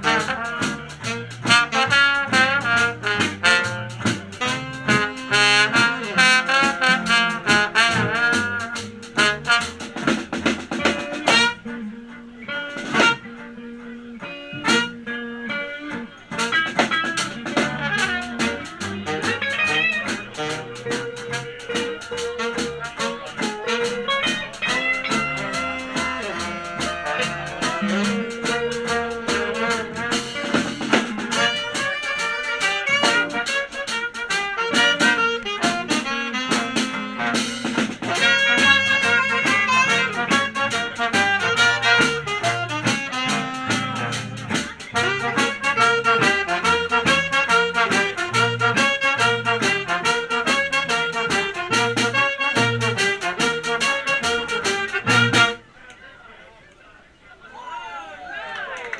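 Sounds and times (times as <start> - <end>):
swing band playing jazz-blues: 0.0 - 55.7
long held horn notes: 17.6 - 55.6.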